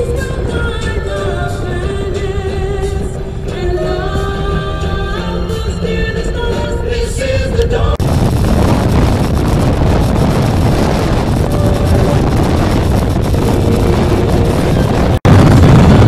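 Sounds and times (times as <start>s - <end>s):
music: 0.0s - 8.0s, 11.3s - 16.0s
engine and road rumble: 0.0s - 16.0s
wind rushing over microphone: 0.0s - 16.0s.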